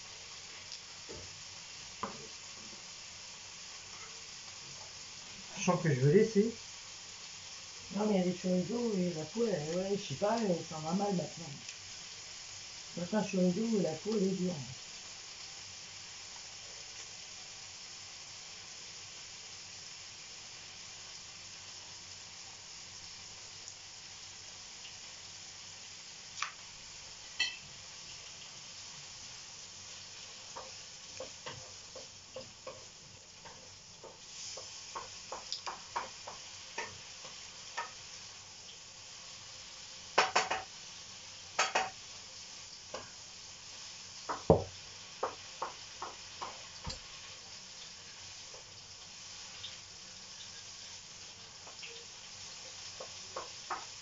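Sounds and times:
faint steady hiss: 0.0s - 54.0s
knife tapping on cutting board: 40.2s - 40.7s, 44.3s - 47.0s.

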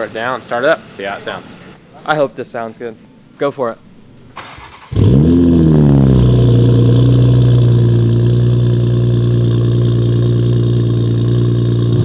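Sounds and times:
car engine starting and idling: 4.3s - 12.0s.

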